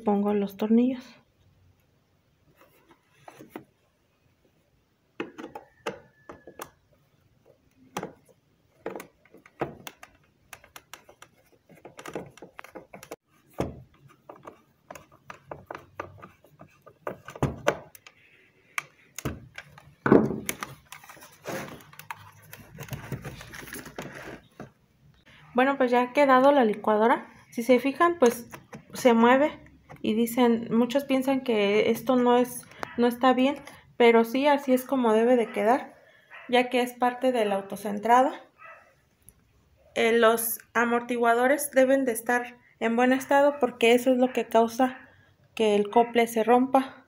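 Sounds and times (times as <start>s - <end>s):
clicks scrapes and knocks of handling: 7.9s - 24.7s.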